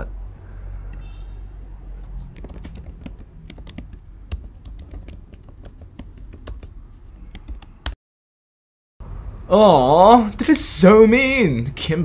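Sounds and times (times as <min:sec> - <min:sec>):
typing on computer keyboard: 0:02.0 - 0:08.0.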